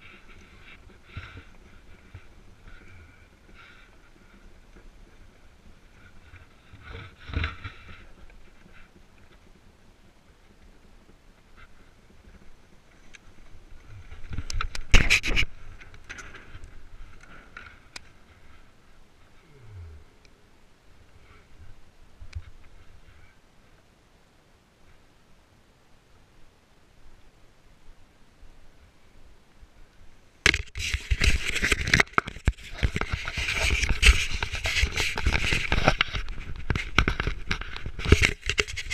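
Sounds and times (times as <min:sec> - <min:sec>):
sharp clicks and knocks: 0:30.4 - 0:38.9
iceboard running over ice: 0:30.6 - 0:38.9.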